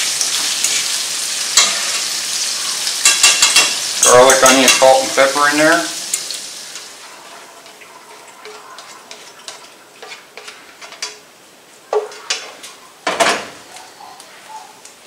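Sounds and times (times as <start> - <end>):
fork scraping a frying pan: 0.3 - 5.0, 6.1 - 11.2.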